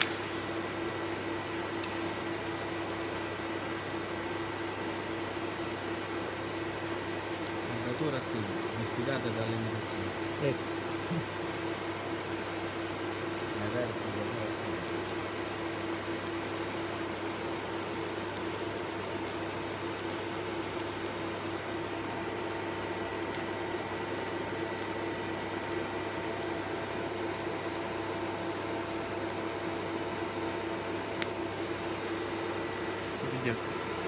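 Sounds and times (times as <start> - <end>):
low electrical hum: 0.0 - 34.0
welding arc hissing: 10.4 - 32.6
faint crackles: 12.4 - 31.6.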